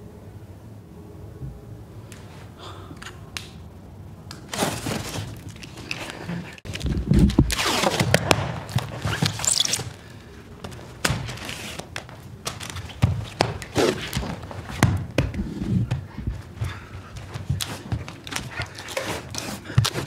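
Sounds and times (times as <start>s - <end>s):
irregular thuds and knocks: 12.0s - 18.8s.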